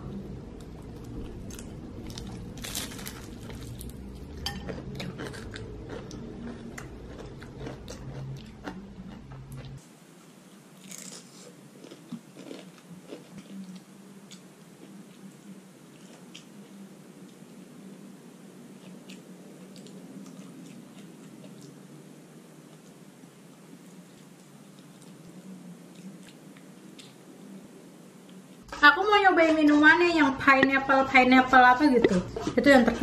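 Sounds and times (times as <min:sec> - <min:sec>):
crunching and chewing crispy food: 0:00.6 - 0:09.8, 0:10.8 - 0:15.3, 0:18.8 - 0:22.0.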